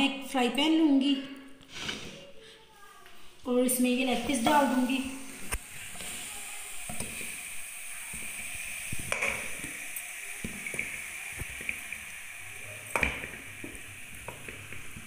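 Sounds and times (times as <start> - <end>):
steady hiss: 1.6 - 15.0.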